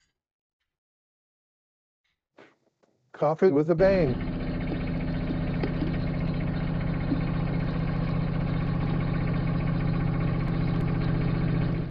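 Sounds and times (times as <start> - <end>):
espresso pump humming: 3.8 - 11.9.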